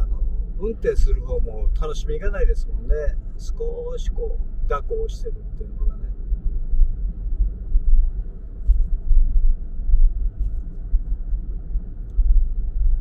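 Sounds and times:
car driving rumble: 0.0s - 13.0s.

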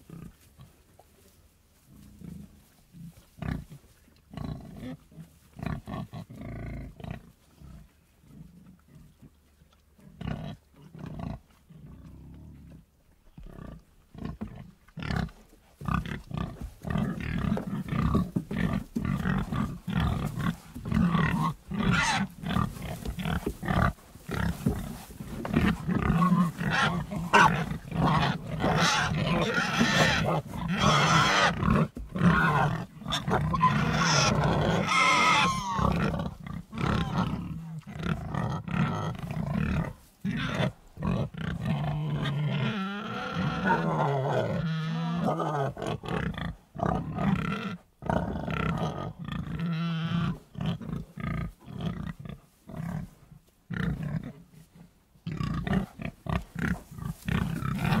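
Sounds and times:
pigs grunting and squealing: 13.4s - 54.4s, 55.3s - 58.0s.

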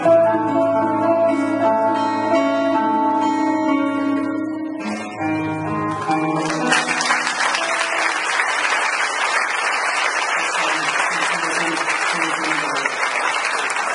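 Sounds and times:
acoustic guitars strumming: 0.0s - 8.2s
audience applauding: 5.8s - 13.9s.

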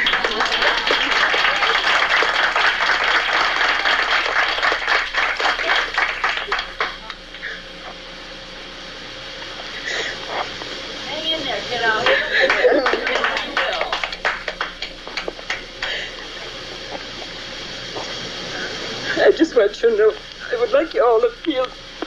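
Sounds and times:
audience applauding: 0.0s - 7.2s, 12.0s - 16.6s.

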